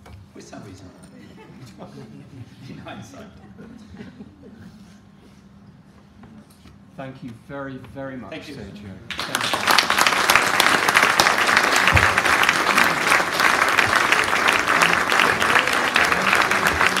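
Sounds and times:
audience applauding: 9.1 - 17.0.

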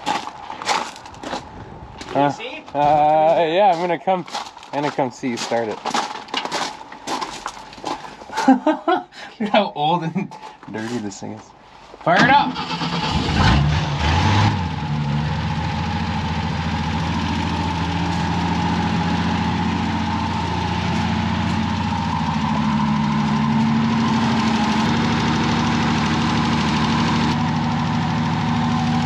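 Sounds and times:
truck engine idling: 14.6 - 29.0.

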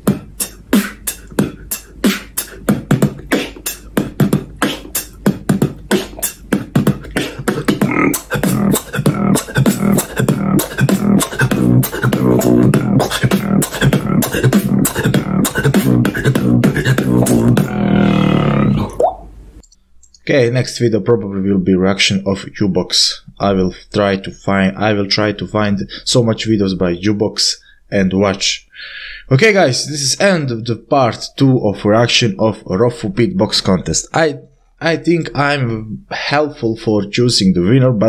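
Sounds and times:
person beatboxing: 0.0 - 19.0
deep buzzing vocal bass: 0.0 - 19.1.

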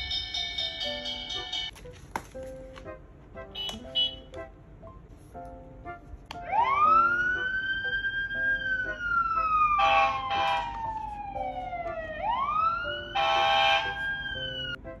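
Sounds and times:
siren wail from small speaker: 6.5 - 14.8.

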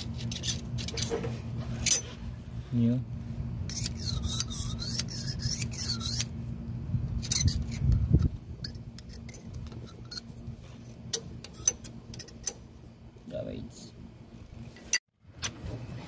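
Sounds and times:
metal blade scraping steel pin: 0.0 - 1.2, 1.8 - 2.2, 3.7 - 6.3, 7.2 - 10.3, 11.1 - 12.6
low steady hum: 0.0 - 16.0.

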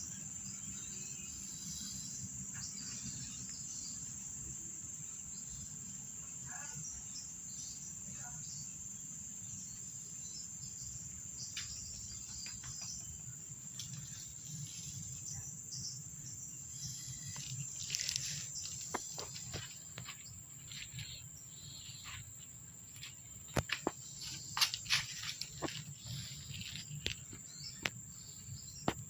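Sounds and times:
insects trilling: 0.0 - 29.0
faint clicks and rustles: 16.8 - 28.0.

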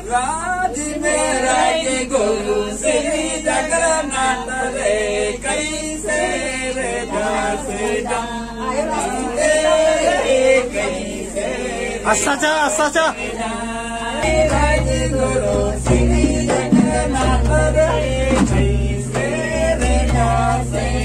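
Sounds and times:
group singing folk song: 0.0 - 21.0
hand drum beating: 14.2 - 21.0.

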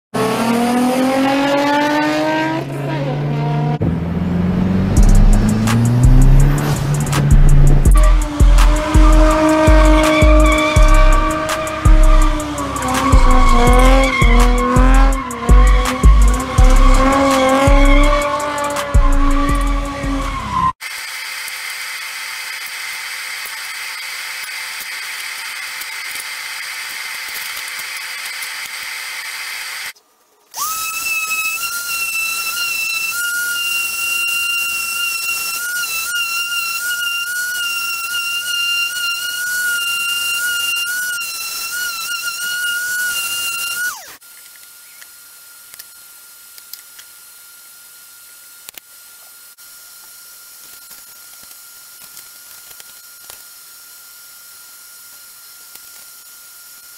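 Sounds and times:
power tool whining: 0.2 - 56.9.

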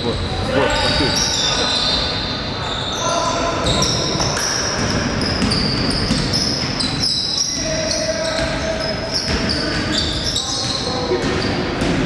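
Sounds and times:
large hall noise: 0.0 - 12.0
shoes squeaking on floor: 0.0 - 12.0
basketball bouncing on court: 3.6 - 12.0.

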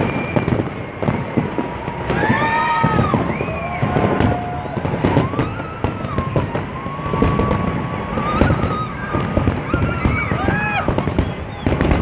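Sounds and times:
fireworks bursting: 0.0 - 12.0.

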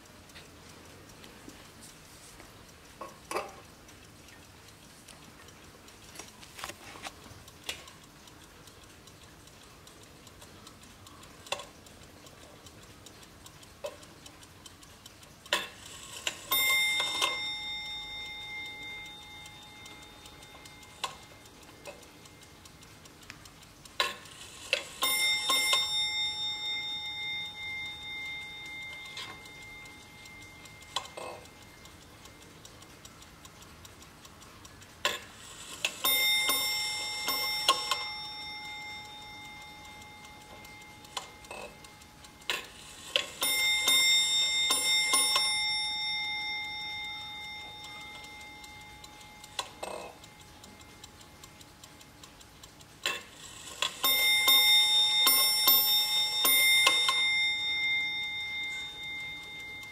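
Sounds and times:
clock movement clicks: 0.0 - 59.9
ship's clock bell striking: 25.0 - 30.3, 36.0 - 40.8, 43.4 - 49.4, 54.0 - 59.9.

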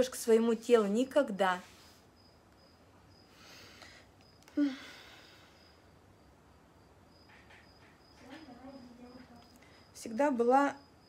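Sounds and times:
cricket chirping: 0.0 - 11.0
person breathing: 3.3 - 5.8.

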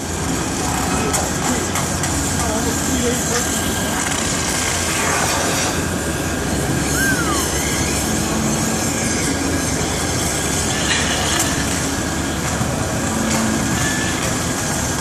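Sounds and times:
brief falling squeal: 6.9 - 8.0.

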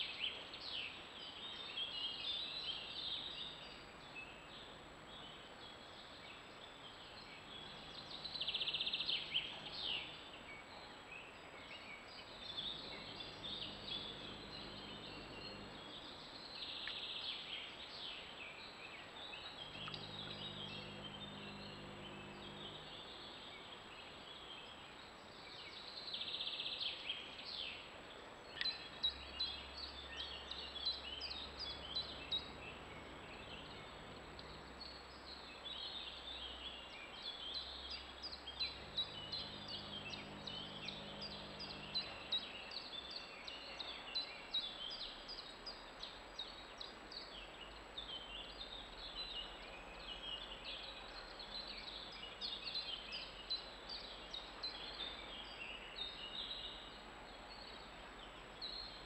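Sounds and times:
songbirds twittering: 0.0 - 59.0.

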